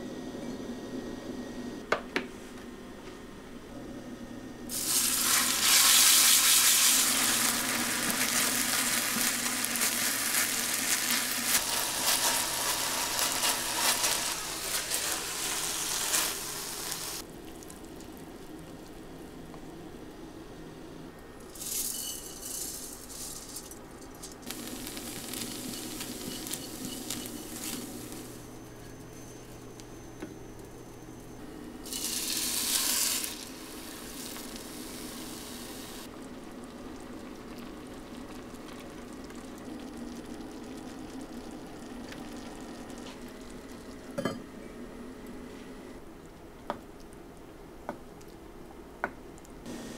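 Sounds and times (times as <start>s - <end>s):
rice sizzling in pot: 4.7s - 17.8s, 24.4s - 28.4s, 31.8s - 36.2s.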